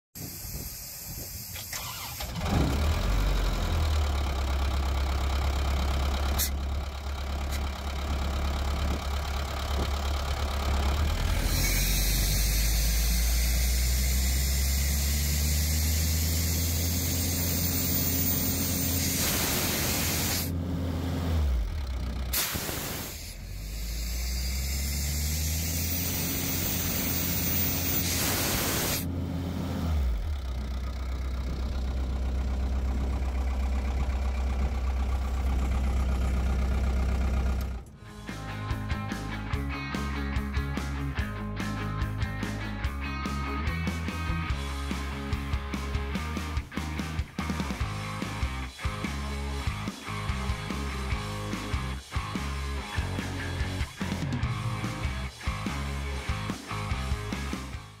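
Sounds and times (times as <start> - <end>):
diesel engine running: 0.2 - 58.0
air hissing: 11.4 - 20.5, 22.3 - 29.0.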